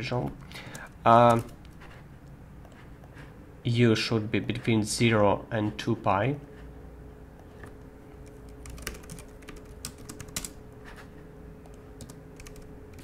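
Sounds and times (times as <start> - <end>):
faint steady hum: 0.0 - 13.0
keyboard typing: 0.2 - 2.0, 7.6 - 13.0.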